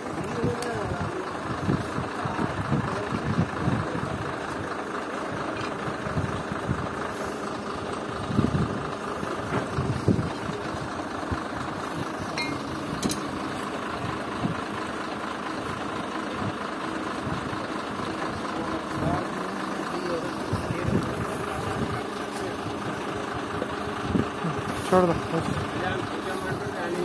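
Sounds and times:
engine idling: 0.0 - 27.0
metallic clinks: 12.4 - 13.3.

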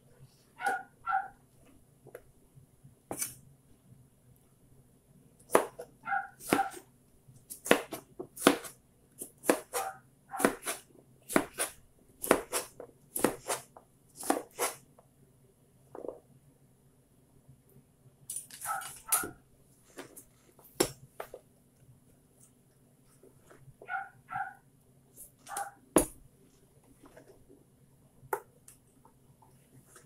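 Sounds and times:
dog yipping: 0.6 - 1.4, 6.0 - 6.8, 9.8 - 10.5, 18.6 - 19.4, 23.8 - 24.6, 25.5 - 25.8
knife chopping on cutting board: 5.5 - 6.8, 7.5 - 14.8.

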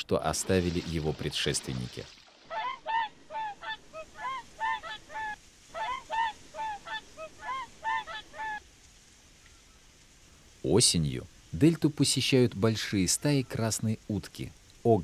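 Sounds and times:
swans honking: 2.4 - 10.0.

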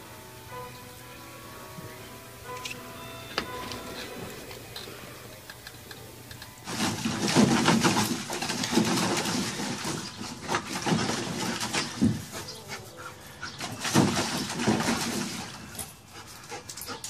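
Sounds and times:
dog splashing in water: 6.6 - 12.4, 13.6 - 15.8.

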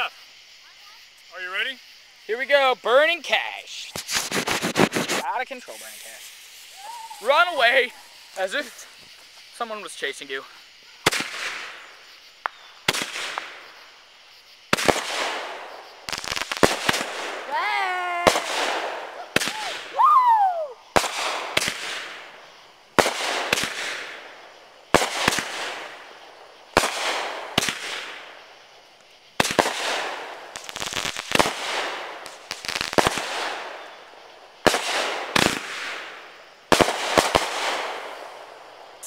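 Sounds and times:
fireworks banging: 2.5 - 10.4, 11.0 - 14.0, 14.7 - 39.0
crackling pops: 3.7 - 9.4, 11.0 - 13.8, 14.7 - 20.0, 20.9 - 38.5.

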